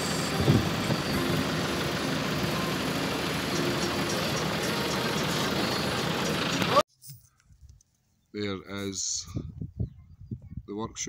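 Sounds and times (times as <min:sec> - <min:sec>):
diesel engine running: 0:00.0 - 0:06.8.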